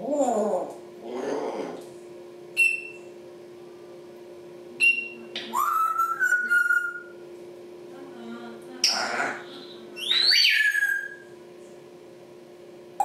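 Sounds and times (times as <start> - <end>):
parrot rising whistle: 2.6 - 3.0, 4.8 - 7.1, 10.0 - 11.3.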